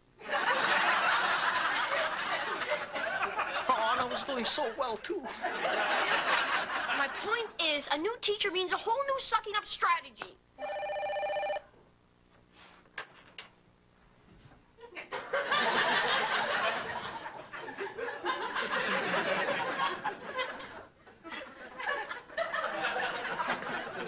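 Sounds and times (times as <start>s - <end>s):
studio audience laughter: 0.2s - 4.6s, 5.2s - 7.4s, 14.8s - 24.0s.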